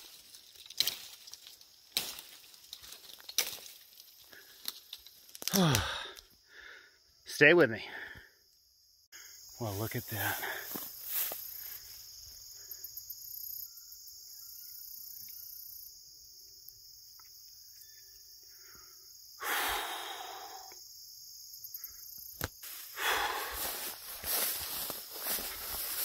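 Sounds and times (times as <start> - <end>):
insects trilling: 0.0 - 26.0
faint bird chirps: 13.2 - 15.9, 17.2 - 18.8
loud heavy exhale: 19.4 - 20.7, 22.9 - 23.8.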